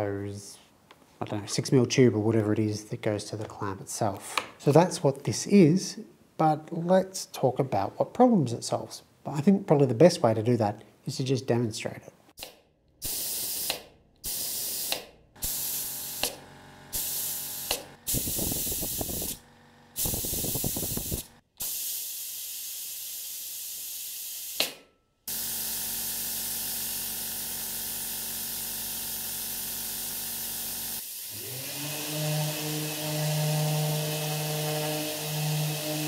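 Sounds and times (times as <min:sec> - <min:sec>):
compressed air hissing: 0:13.0 - 0:19.4, 0:20.0 - 0:24.7, 0:31.0 - 0:31.4
orbital sander whine: 0:17.3 - 0:21.3, 0:30.6 - 0:36.0.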